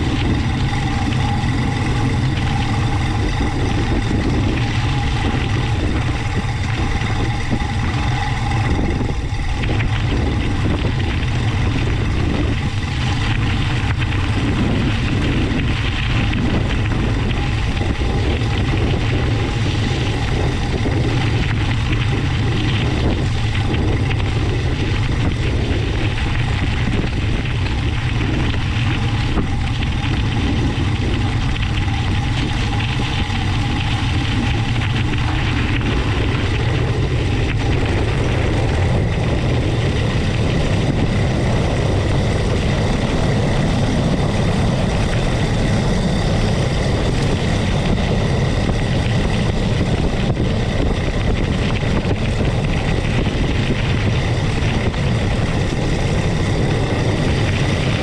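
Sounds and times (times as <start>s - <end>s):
bike tyres rolling on gravel: 0.0s - 58.0s
low wind rumble on microphone: 0.0s - 58.0s.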